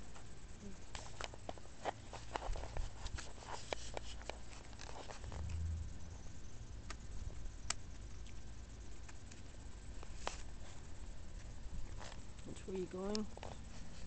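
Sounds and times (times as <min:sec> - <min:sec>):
brief low rumble: 0:05.2 - 0:07.2.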